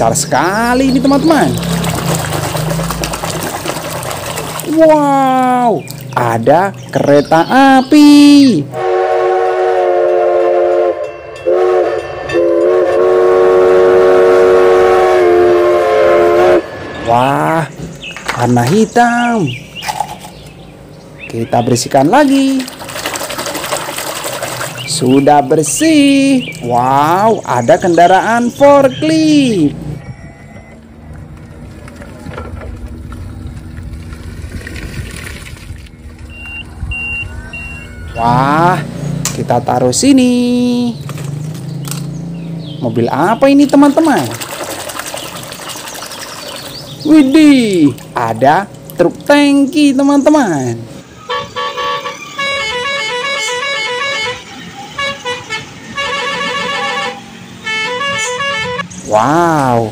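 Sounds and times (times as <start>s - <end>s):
passing road traffic: 0.0s - 59.9s
musical air horn melody: 8.7s - 16.9s, 51.3s - 58.9s
high-pitched warning beeps: 30.0s - 31.0s, 36.3s - 38.4s.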